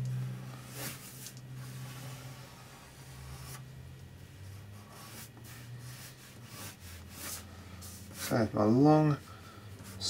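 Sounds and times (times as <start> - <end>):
low steady hum: 0.0 - 10.0
pencil scratching on paper: 4.6 - 8.5.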